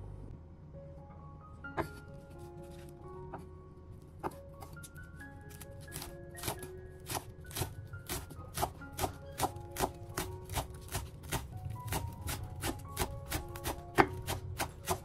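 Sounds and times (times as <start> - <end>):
soft melodic background music: 0.0 - 15.0
knife chopping on cutting board: 5.9 - 15.0.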